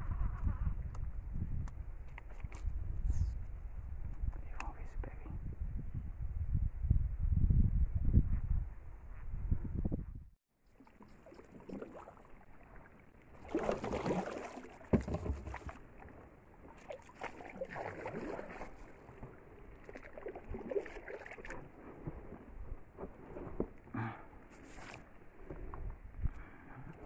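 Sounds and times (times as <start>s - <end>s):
paddle strokes in water: 10.7s - 27.0s.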